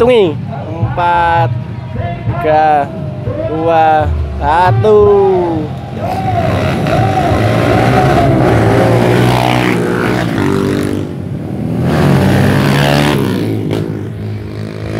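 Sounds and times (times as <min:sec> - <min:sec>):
motorcycle engines revving: 0:02.7 - 0:14.9
dirt bike passing: 0:05.9 - 0:14.9.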